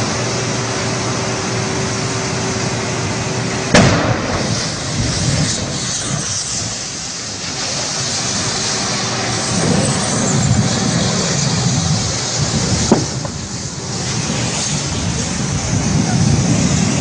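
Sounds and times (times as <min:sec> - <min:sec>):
low explosion rumble: 0:03.6 - 0:07.4, 0:09.5 - 0:17.0
vehicle explosion blast: 0:03.7 - 0:06.8, 0:12.4 - 0:13.6.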